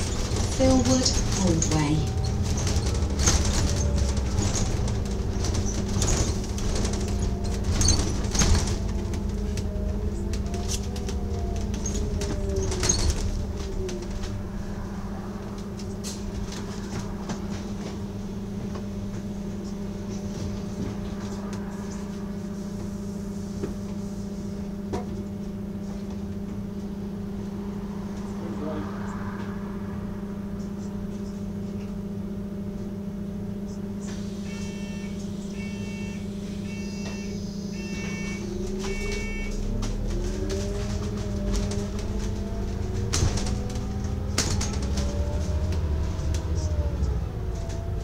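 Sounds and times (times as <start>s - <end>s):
rattles and clicks: 0.0s - 21.7s, 38.6s - 48.0s
bus engine whine: 0.0s - 48.0s.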